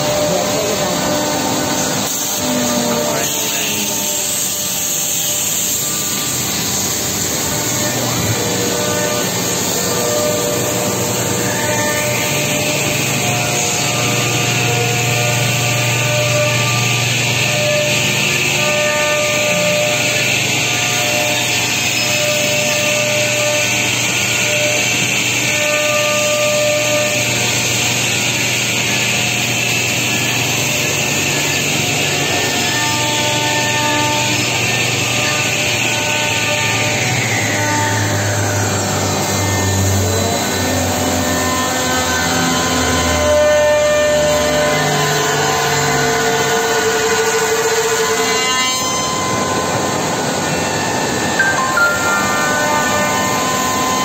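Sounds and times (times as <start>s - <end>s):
router machine cutting wood: 0.0s - 54.0s
spindles whining: 0.0s - 54.0s.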